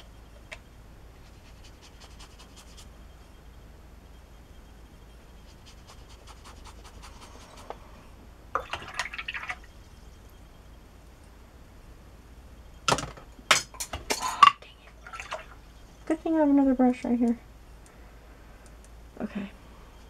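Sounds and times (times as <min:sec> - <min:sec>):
brush brushing across paper: 0:01.2 - 0:02.9, 0:05.4 - 0:07.8.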